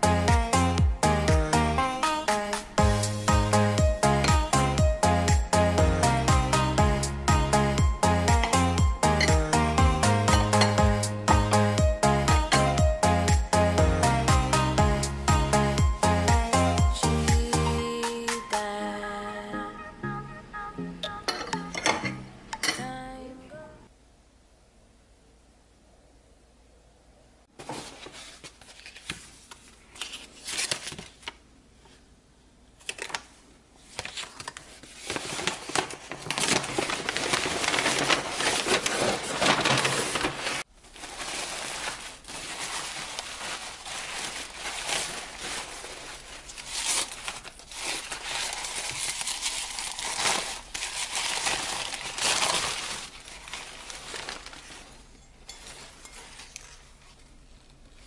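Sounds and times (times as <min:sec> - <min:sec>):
paper crinkling and rustling: 0:27.5 - 0:32.0, 0:32.8 - 0:58.0.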